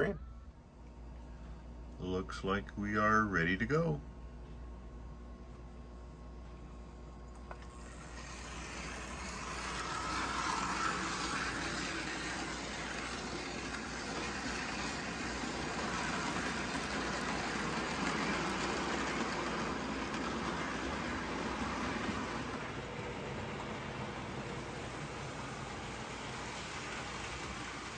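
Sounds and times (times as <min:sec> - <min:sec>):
toy train motor whirring: 0:07.7 - 0:22.6
metal wheels rumbling on rails: 0:08.1 - 0:27.9.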